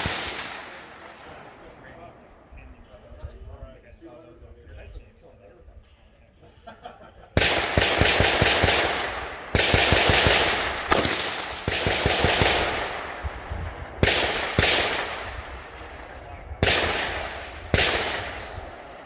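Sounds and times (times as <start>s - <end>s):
rifle shots echoing: 0.0s - 2.5s, 7.4s - 19.0s.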